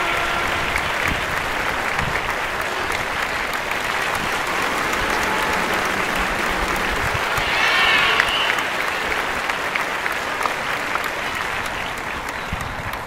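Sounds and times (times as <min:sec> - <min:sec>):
spectators clapping: 0:00.0 - 0:13.0
voices shouting: 0:00.8 - 0:10.0.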